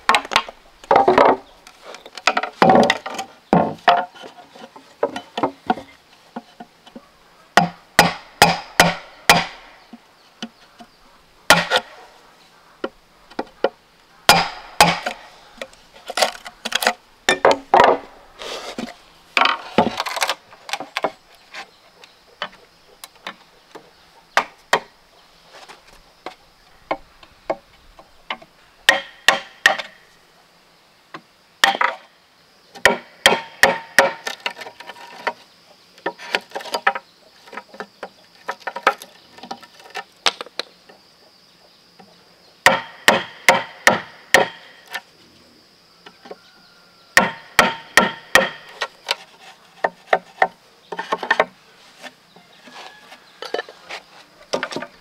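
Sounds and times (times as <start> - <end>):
blade chopping bamboo: 7.6 - 9.7, 11.5 - 11.9, 14.3 - 15.2, 42.7 - 44.6, 47.2 - 51.5.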